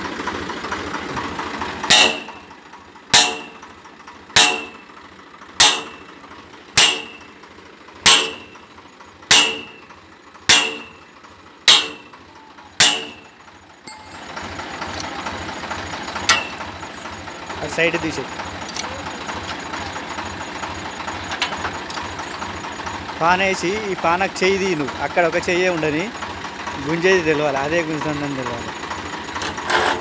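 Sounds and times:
tractor engine running: 0:00.0 - 0:30.0
metallic clangs: 0:01.8 - 0:05.0, 0:05.6 - 0:06.1, 0:06.8 - 0:07.4, 0:08.0 - 0:08.7, 0:09.3 - 0:14.3, 0:16.2 - 0:16.7.

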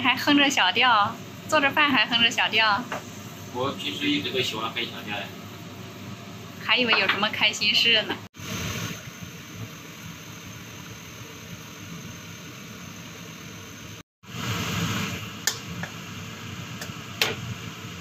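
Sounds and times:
range hood fan running: 0:00.0 - 0:18.0
soup boiling in a wok: 0:08.4 - 0:18.0
light taps on a wok: 0:15.4 - 0:16.0, 0:16.8 - 0:17.4.

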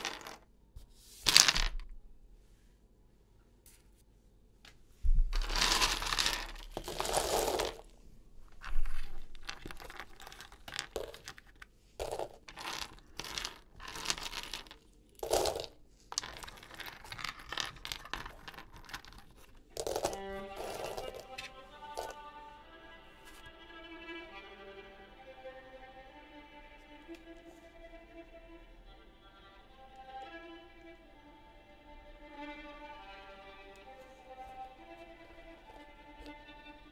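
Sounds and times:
dried beans rattling: 0:00.0 - 0:00.4, 0:05.3 - 0:22.4.

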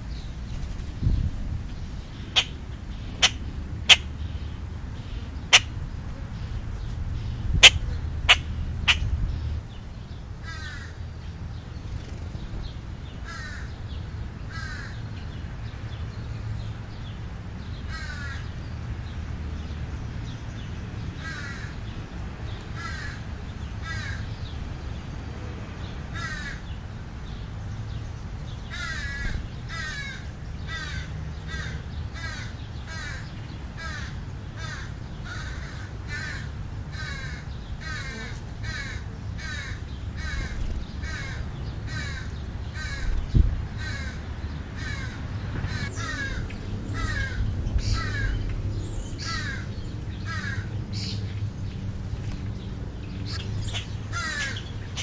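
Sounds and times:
crow cawing: 0:10.4 - 0:11.0, 0:13.2 - 0:13.7, 0:14.5 - 0:15.0, 0:17.9 - 0:18.5, 0:21.2 - 0:21.8, 0:22.8 - 0:23.2, 0:23.8 - 0:24.2, 0:26.2 - 0:26.7, 0:28.7 - 0:43.1, 0:43.8 - 0:44.2, 0:44.8 - 0:48.4, 0:49.2 - 0:51.1, 0:54.1 - 0:55.0.

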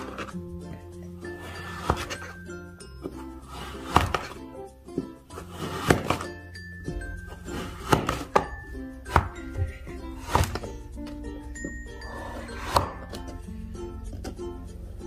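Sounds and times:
background music: 0:00.0 - 0:15.0
scraper slicing kinetic sand: 0:03.5 - 0:04.4.

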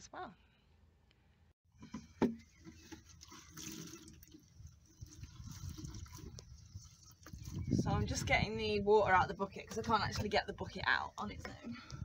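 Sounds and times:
water sloshing and dripping: 0:01.8 - 0:08.5.

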